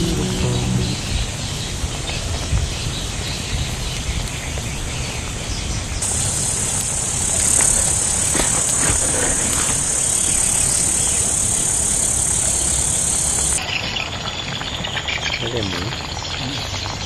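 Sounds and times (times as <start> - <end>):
low steady rumble: 0.0 - 1.6
wok simmering: 0.0 - 3.4, 6.0 - 15.4
wood fire crackling: 0.0 - 16.6
high insect drone: 6.0 - 13.6.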